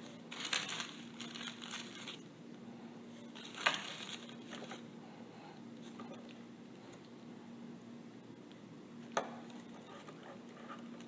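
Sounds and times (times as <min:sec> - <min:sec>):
roller bearings rustling: 0:00.0 - 0:02.3, 0:03.1 - 0:04.9.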